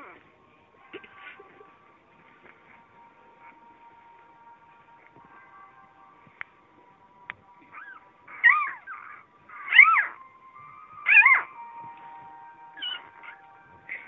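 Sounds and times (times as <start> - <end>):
puppy whining: 7.6 - 11.6, 12.8 - 14.0.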